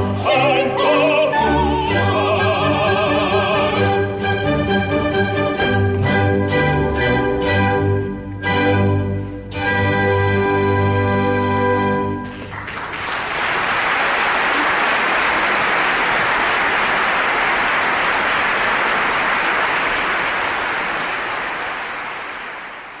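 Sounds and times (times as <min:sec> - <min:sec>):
audience applauding: 0:12.2 - 0:23.0.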